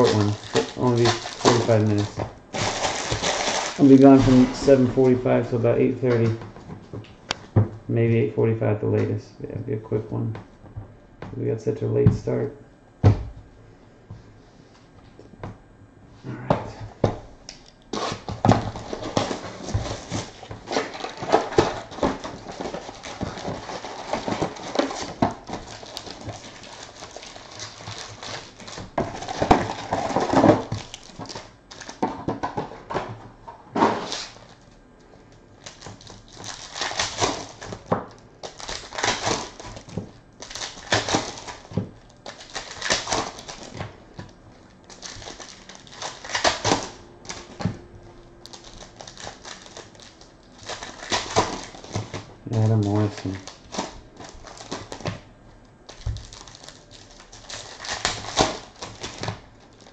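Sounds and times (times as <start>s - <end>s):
card packs crinkling: 0.0s - 6.4s, 17.6s - 47.8s, 48.4s - 55.2s, 55.8s - 59.9s.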